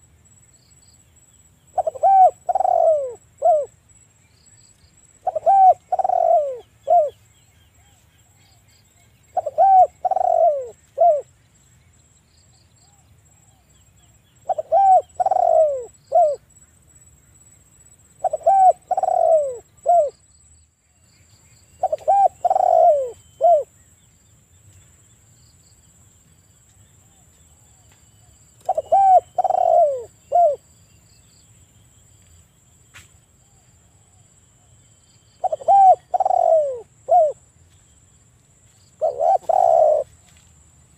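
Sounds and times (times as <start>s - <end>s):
dove cooing: 1.7s - 3.7s, 5.2s - 7.2s, 9.3s - 11.3s, 14.4s - 16.4s, 18.2s - 20.2s, 21.8s - 23.7s, 28.6s - 30.6s, 35.4s - 37.4s, 39.0s - 40.1s.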